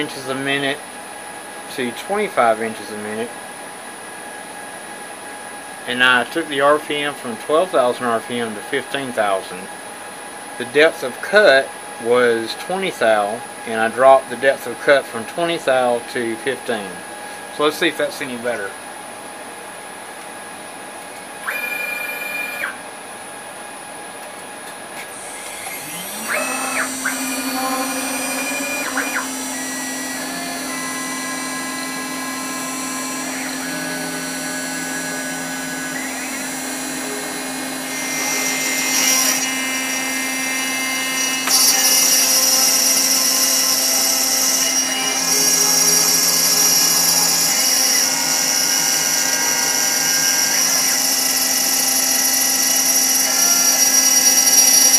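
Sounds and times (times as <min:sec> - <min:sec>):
router spindle humming: 0:21.4 - 0:22.8, 0:25.0 - 0:54.9
stepper motors whining: 0:21.4 - 0:22.8, 0:25.0 - 0:54.9
end mill screeching into metal: 0:25.2 - 0:37.0.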